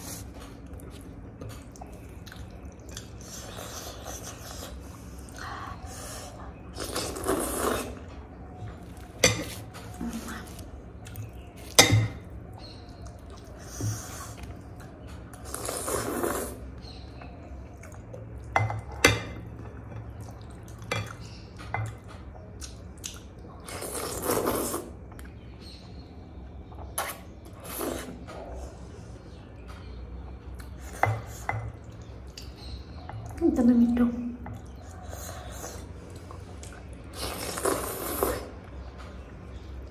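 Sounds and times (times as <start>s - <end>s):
slurping noodles: 6.8s - 8.0s, 15.4s - 16.6s, 37.1s - 38.6s.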